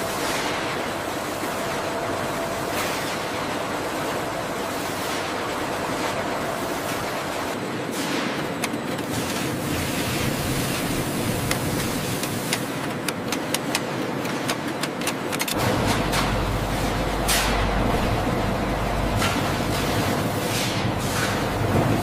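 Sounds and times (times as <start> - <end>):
machinery running: 0.0 - 22.0
sharp clicks: 11.5 - 15.6
roller machine low rumble: 15.6 - 22.0.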